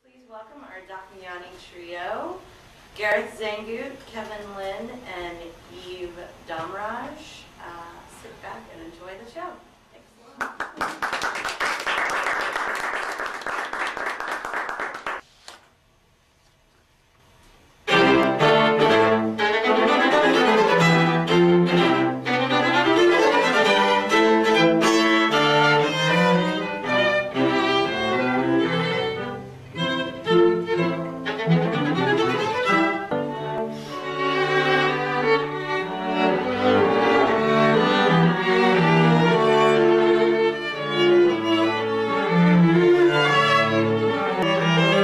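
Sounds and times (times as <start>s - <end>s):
audience applauding: 10.4s - 15.2s
classical string trio playing: 17.8s - 45.0s.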